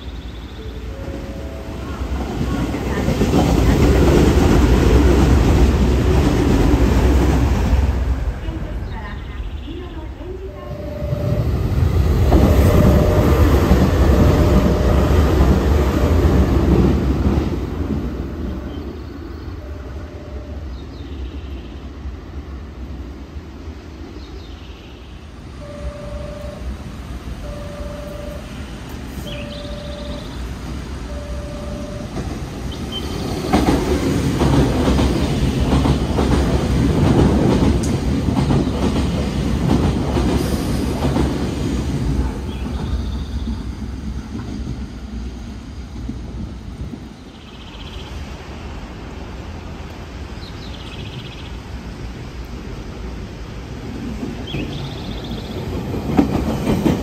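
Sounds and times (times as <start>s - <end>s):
train rumbling past: 0.0s - 57.0s
electronic warning tone: 10.6s - 11.6s, 25.6s - 26.8s, 27.4s - 28.6s, 29.3s - 30.4s, 31.1s - 32.2s
train wheels clattering: 32.0s - 44.9s, 54.0s - 57.0s.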